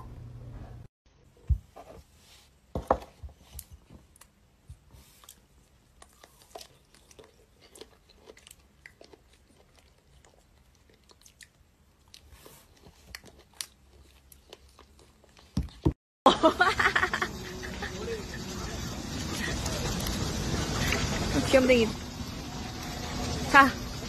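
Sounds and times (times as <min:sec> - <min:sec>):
wet chewing of strawberries: 0:03.6 - 0:15.9
loud dense noise with voices: 0:23.1 - 0:23.8.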